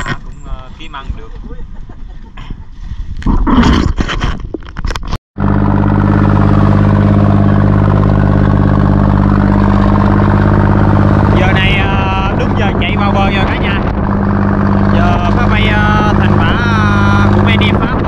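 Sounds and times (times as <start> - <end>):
boat engine running: 5.4 - 18.0.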